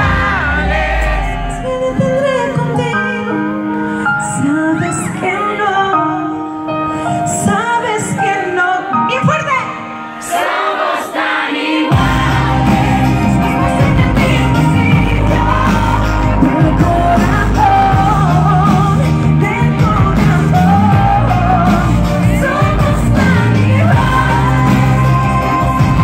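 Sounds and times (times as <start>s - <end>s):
bass line: 0.0s - 3.2s, 11.9s - 26.0s
live band playing: 0.0s - 11.0s, 11.7s - 26.0s
woman singing: 1.1s - 6.4s, 7.0s - 10.7s, 11.9s - 26.0s.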